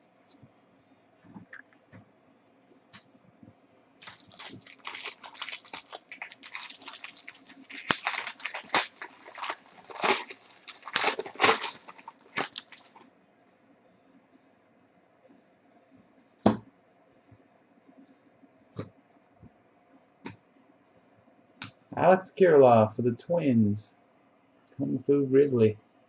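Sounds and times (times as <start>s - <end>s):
foil wrapper crinkling and tearing: 4.0s - 13.0s.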